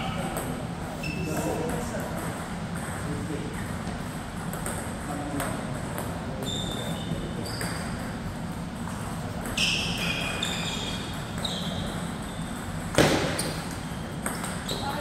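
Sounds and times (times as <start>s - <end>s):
sneakers squeaking on floor: 0.0s - 1.8s, 6.3s - 8.2s, 8.8s - 15.0s.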